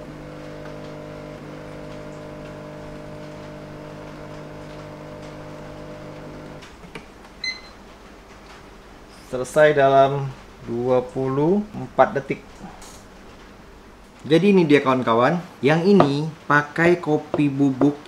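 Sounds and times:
espresso machine pump humming: 0.0 - 6.7.

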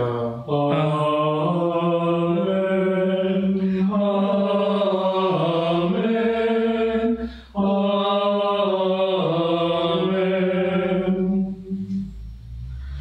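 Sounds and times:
slow chanted amen: 0.0 - 12.2
singer breath: 3.6 - 3.9, 7.2 - 7.6, 12.4 - 13.0.

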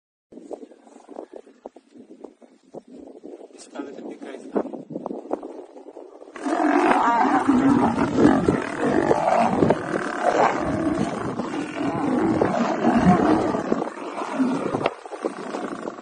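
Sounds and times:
lions roaring and growling: 6.4 - 16.0.

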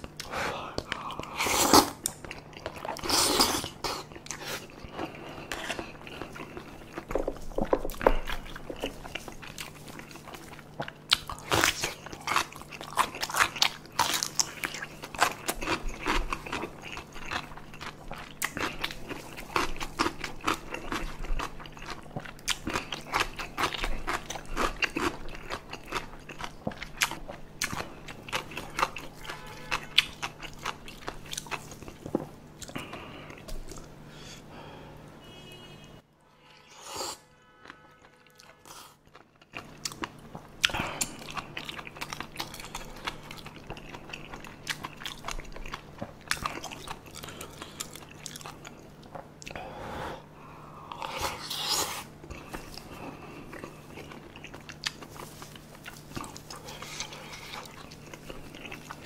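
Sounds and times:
wet chewing mouth sounds: 0.0 - 34.0, 38.4 - 49.6, 50.9 - 59.0.

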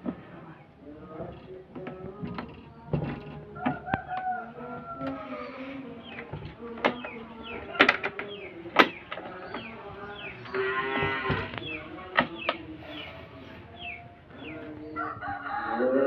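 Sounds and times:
metal latch clicking: 6.1 - 9.8.

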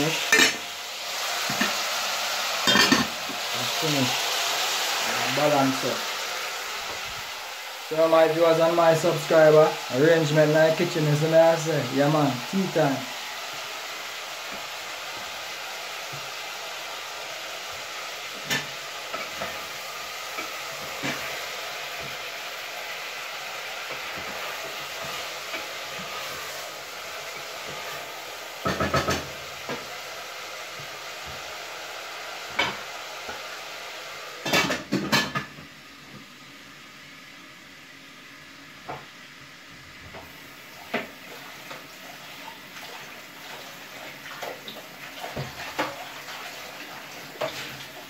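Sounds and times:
pots and utensils clinking: 0.0 - 0.7, 1.4 - 1.8, 2.6 - 3.4, 18.4 - 19.6, 28.6 - 29.9, 34.4 - 35.6
steady hiss: 0.0 - 34.6.

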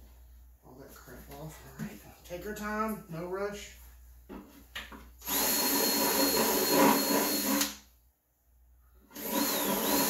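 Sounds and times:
cordless drill boring into plastic: 5.2 - 7.8, 9.1 - 10.0.

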